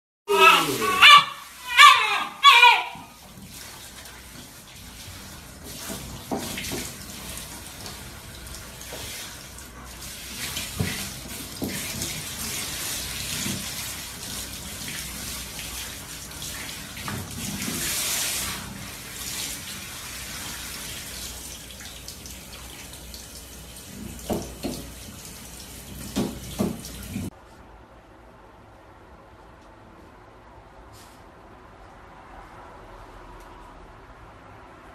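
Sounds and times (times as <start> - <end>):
shower spraying water: 0.3 - 27.3.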